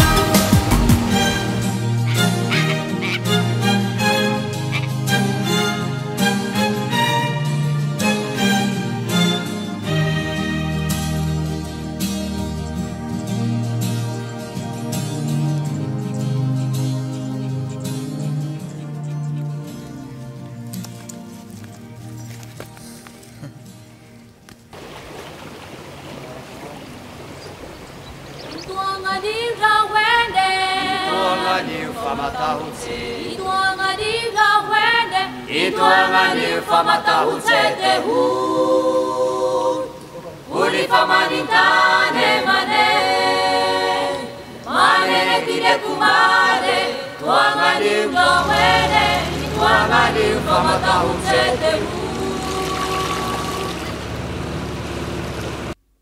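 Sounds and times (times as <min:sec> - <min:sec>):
choir singing unaccompanied: 0:00.0 - 0:11.9, 0:28.6 - 0:54.7
low steady hum: 0:47.9 - 0:55.8.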